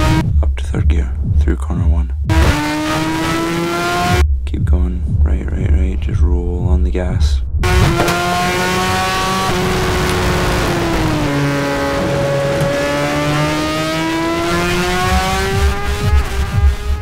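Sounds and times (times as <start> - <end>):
motorcycle engine revving high: 0.0 - 0.2, 2.3 - 4.2, 7.6 - 17.0.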